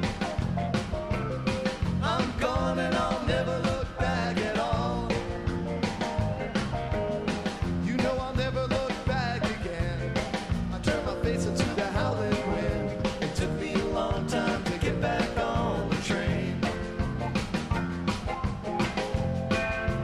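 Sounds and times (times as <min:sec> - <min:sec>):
rock band playing: 0:00.0 - 0:20.0
sung vocals: 0:01.8 - 0:05.7, 0:07.6 - 0:17.1.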